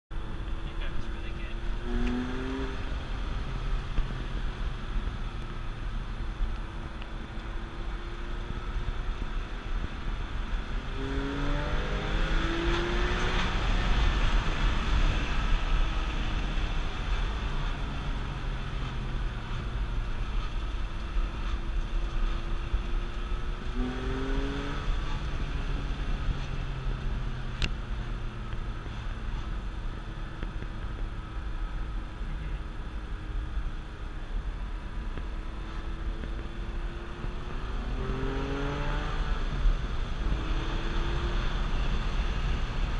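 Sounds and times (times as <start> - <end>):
tyre and road rumble: 0.1 - 42.9
car engine from inside cabin: 0.2 - 42.9.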